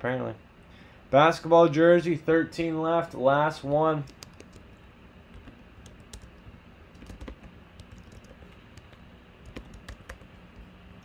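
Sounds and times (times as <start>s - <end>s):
computer keyboard typing: 4.0s - 10.7s.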